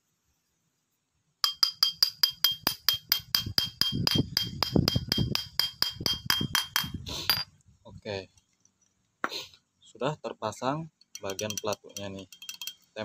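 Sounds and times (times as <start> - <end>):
hammer tapping on metal: 1.4 - 7.5.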